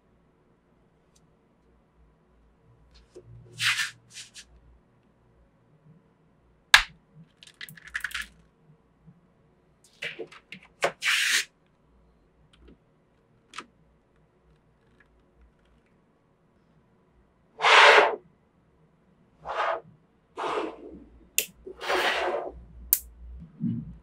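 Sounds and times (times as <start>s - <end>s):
magnetic balls clattering: 7.3s - 8.4s.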